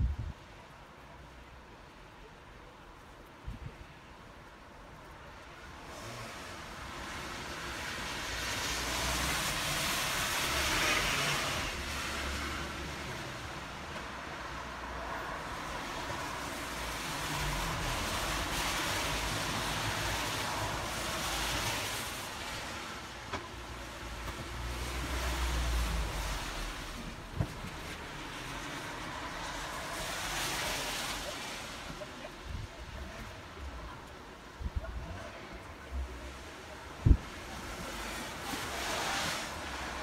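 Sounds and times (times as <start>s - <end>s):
tyres hissing on wet road: 4.8s - 40.0s.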